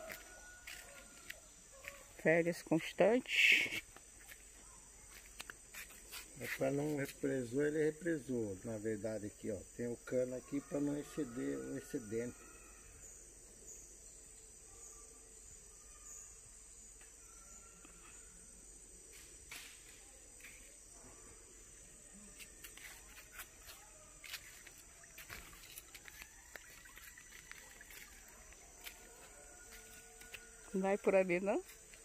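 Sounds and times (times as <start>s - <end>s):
footsteps crunching on dry leaves: 0.0s - 2.1s, 5.1s - 7.2s, 22.3s - 30.7s
high-pitched insect chorus: 0.0s - 32.0s.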